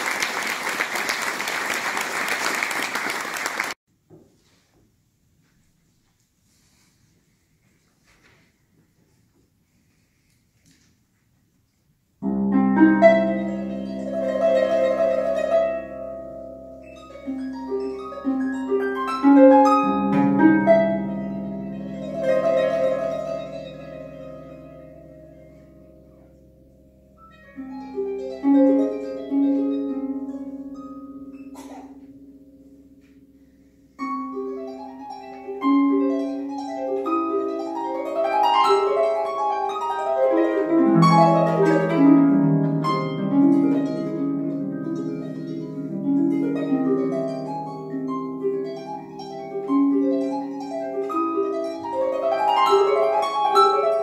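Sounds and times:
harp playing: 12.2 - 54.0.

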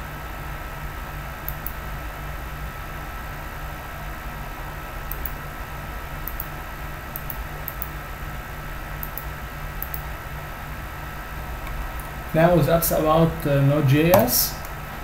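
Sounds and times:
low hum and hiss: 0.0 - 15.0
computer mouse clicking: 1.5 - 1.8, 5.1 - 5.4, 6.2 - 6.5, 7.1 - 8.0, 9.0 - 10.1.

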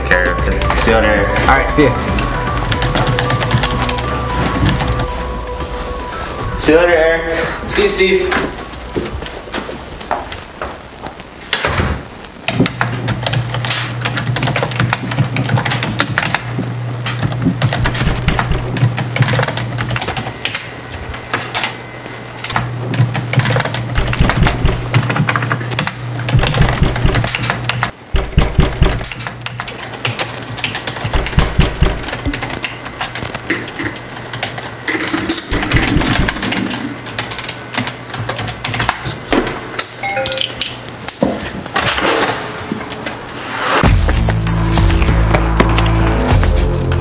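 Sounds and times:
keyboard typing: 2.1 - 5.2, 12.5 - 20.7, 22.4 - 39.2
low steady hum: 16.6 - 29.6.

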